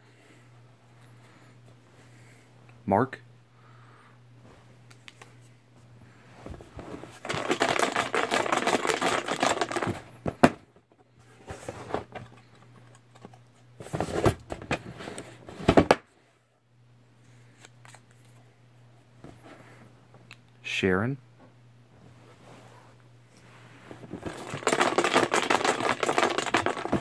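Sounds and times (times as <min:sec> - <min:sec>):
paper slips rustling and rattling: 0:07.1 - 0:10.5, 0:24.0 - 0:27.0.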